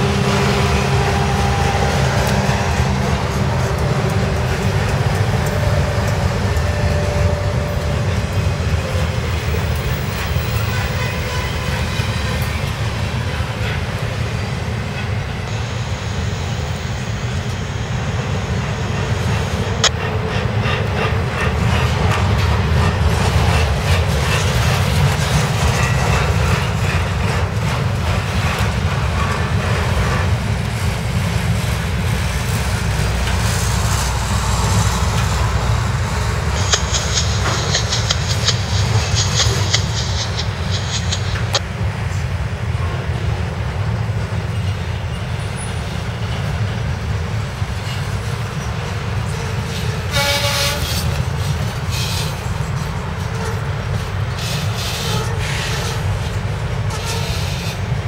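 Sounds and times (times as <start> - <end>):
freight train wheels rumbling: 0.0 - 58.0
sharp click: 36.6 - 41.6.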